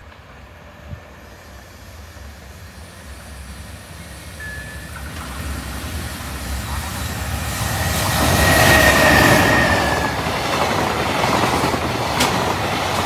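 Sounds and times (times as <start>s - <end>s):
freight train rumble: 0.0s - 13.0s.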